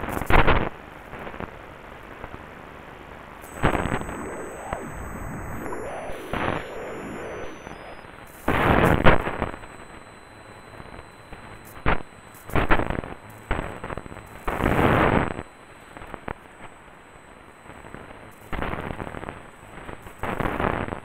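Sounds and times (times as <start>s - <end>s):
radio hiss: 3.5s - 15.4s.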